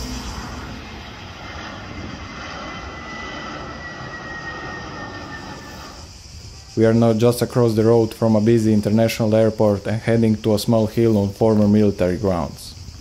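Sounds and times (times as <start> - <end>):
jet airliner flying overhead: 0.0 - 13.0.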